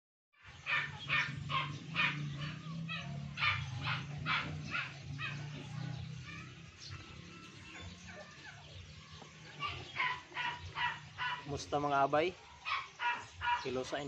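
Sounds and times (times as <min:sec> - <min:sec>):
dog barking: 0:00.6 - 0:06.5, 0:09.6 - 0:11.5, 0:12.6 - 0:14.0.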